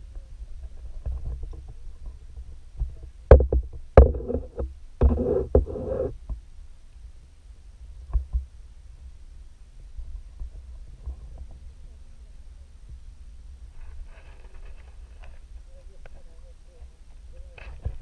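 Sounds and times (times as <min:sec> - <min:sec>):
sharp knocks and clatter: 0:03.3 - 0:05.7.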